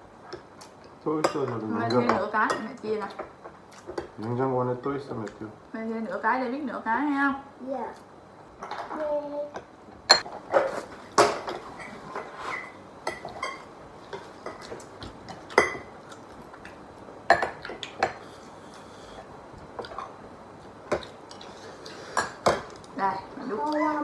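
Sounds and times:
cutlery clinking against bowls: 0:10.1 - 0:15.9.

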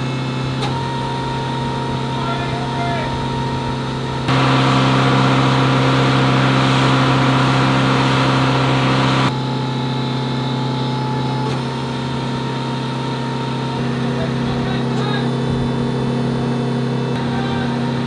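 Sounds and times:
ground equipment humming: 0:00.0 - 0:18.0
loud rushing noise: 0:04.2 - 0:09.4.

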